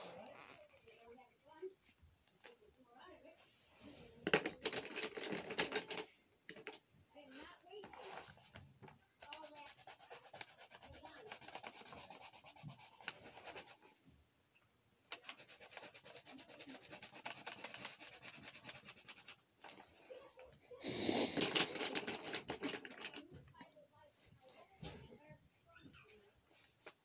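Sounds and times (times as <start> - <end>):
pencil scribbling on paper: 9.2 - 14.0, 15.2 - 19.4.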